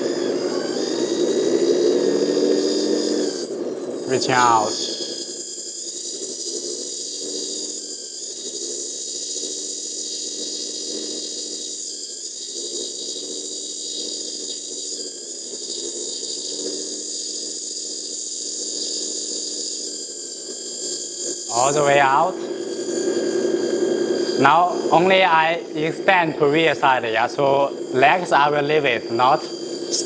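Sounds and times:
hydraulic pump whining: 0:00.0 - 0:05.4
low drone: 0:21.5 - 0:30.0.

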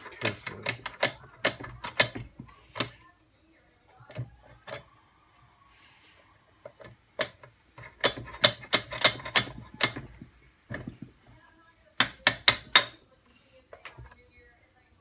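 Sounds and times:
sharp metal clicks and taps: 0:00.0 - 0:03.0, 0:06.6 - 0:10.9, 0:12.0 - 0:13.0.

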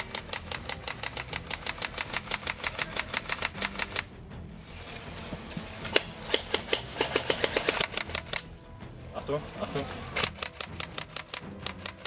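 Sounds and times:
airsoft rifle firing: 0:00.0 - 0:04.1, 0:05.8 - 0:08.5.

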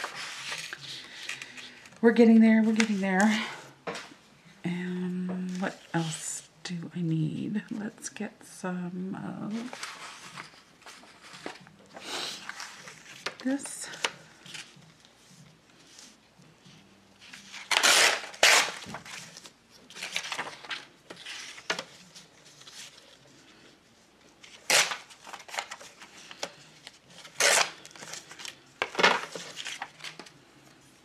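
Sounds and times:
paper rustling: 0:00.0 - 0:02.0, 0:09.6 - 0:30.8
paper tearing along ruler: 0:17.7 - 0:18.9, 0:24.6 - 0:25.0, 0:27.4 - 0:27.7.

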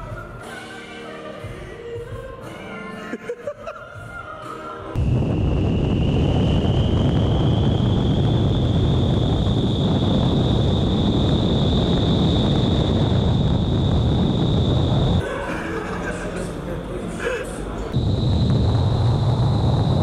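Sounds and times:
high fan whine: 0:05.0 - 0:20.0
rushing airflow buffeting microphone: 0:05.0 - 0:20.0.

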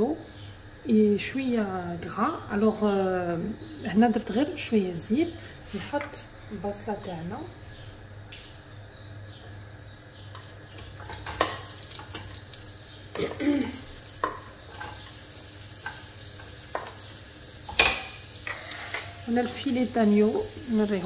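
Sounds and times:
onion sizzling in hot oil: 0:10.9 - 0:21.0
wooden spoon scraping pot: 0:15.8 - 0:19.9.

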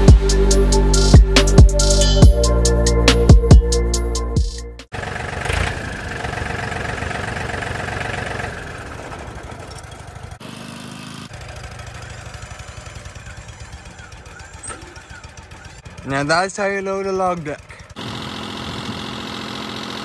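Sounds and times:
engine idling: 0:04.9 - 0:20.0.

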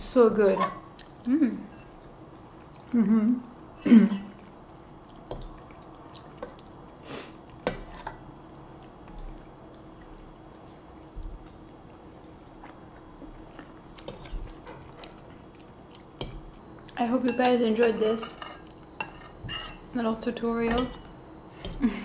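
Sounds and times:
faint steady hum: 0:00.0 - 0:22.0
soft chewing: 0:01.0 - 0:03.2, 0:04.2 - 0:17.0.

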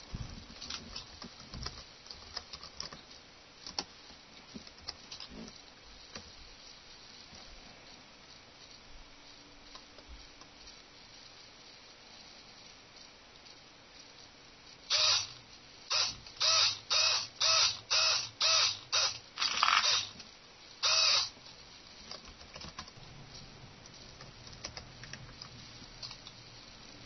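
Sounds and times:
servo motors whirring: 0:14.9 - 0:15.3, 0:15.9 - 0:20.1, 0:20.8 - 0:21.3.

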